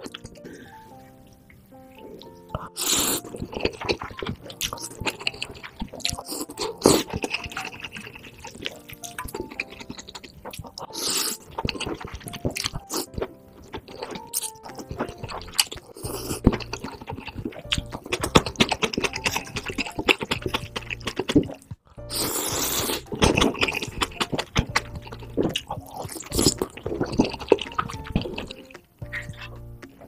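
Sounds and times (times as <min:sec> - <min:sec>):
background music: 0:00.0 - 0:30.0
slurping and chewing noodles: 0:00.0 - 0:30.0
mouth clicks: 0:02.2 - 0:30.0.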